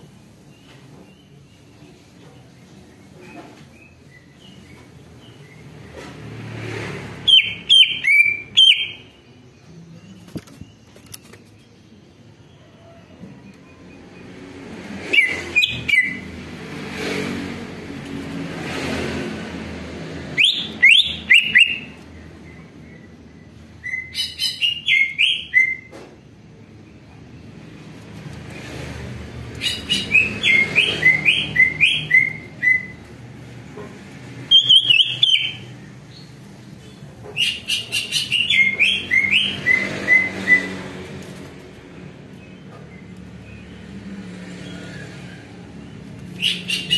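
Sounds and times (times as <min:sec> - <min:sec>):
low traffic rumble: 0:00.0 - 0:46.9
bird singing whistled notes: 0:07.3 - 0:09.1, 0:20.4 - 0:22.0, 0:23.8 - 0:25.9, 0:29.6 - 0:33.0, 0:34.5 - 0:36.3, 0:37.4 - 0:40.8.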